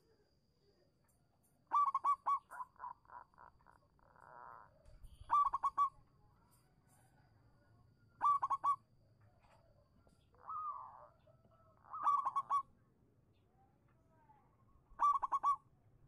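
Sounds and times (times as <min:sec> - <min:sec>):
dove cooing: 0:01.7 - 0:06.0, 0:08.2 - 0:08.8, 0:10.4 - 0:12.7, 0:15.0 - 0:15.6.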